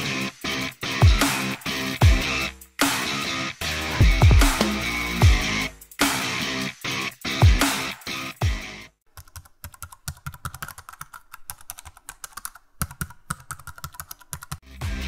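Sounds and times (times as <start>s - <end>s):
music with deep drum hits: 4.0s - 5.4s
computer keyboard typing clicks: 9.2s - 14.6s.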